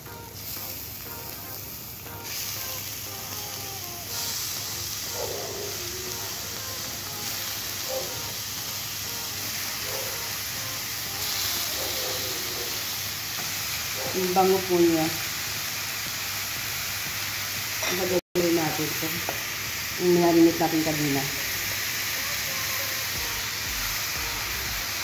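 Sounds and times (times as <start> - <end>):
meat sizzling in a pan: 0.0 - 25.0.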